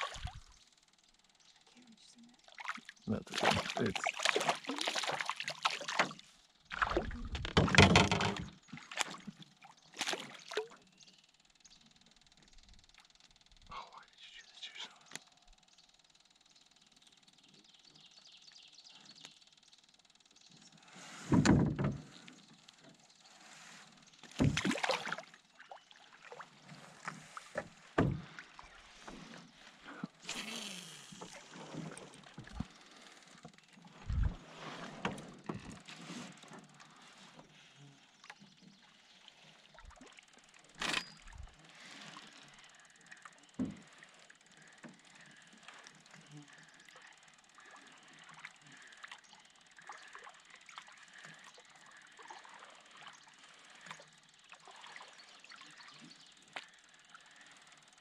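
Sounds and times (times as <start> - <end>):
paddle water swishes: 2.6 - 7.2
paddle knocking on canoe hull: 7.4 - 8.5.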